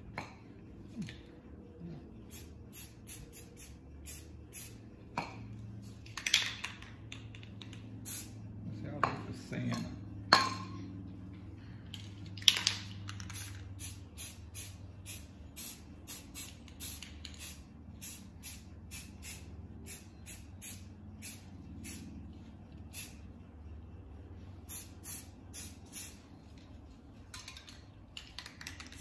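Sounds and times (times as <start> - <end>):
spray can ball rattling: 2.3 - 4.8, 5.9 - 8.4, 11.9 - 22.1, 22.8 - 23.2, 24.6 - 26.2, 27.2 - 29.0.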